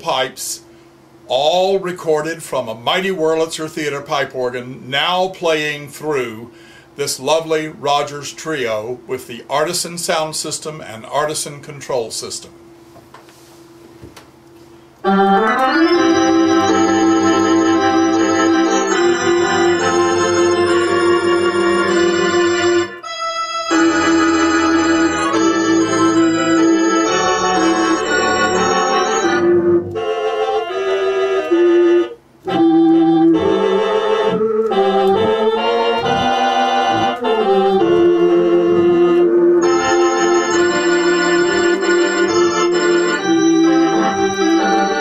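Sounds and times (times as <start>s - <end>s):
theatre organ with tremulant: 15.0s - 45.0s.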